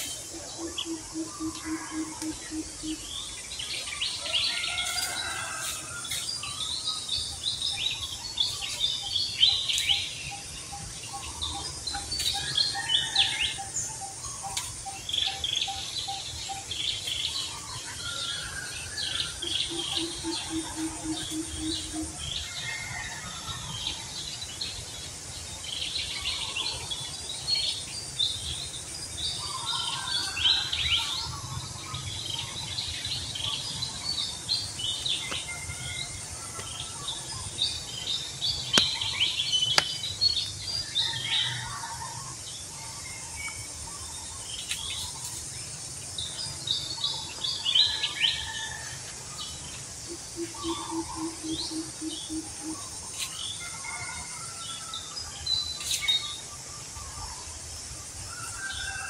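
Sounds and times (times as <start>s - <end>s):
small birds chirping: 27.6s - 41.8s.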